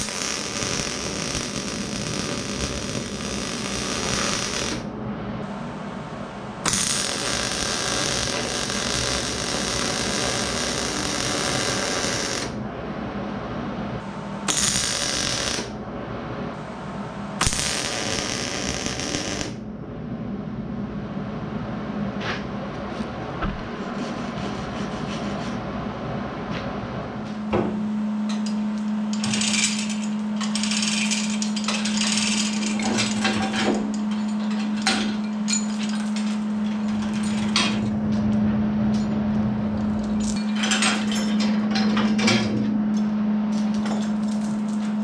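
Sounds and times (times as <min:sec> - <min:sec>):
welding arc crackle: 0:00.0 - 0:04.9, 0:06.6 - 0:12.6, 0:14.5 - 0:15.8, 0:17.4 - 0:19.6, 0:28.8 - 0:33.2, 0:43.5 - 0:45.0
low hum: 0:00.0 - 0:45.0.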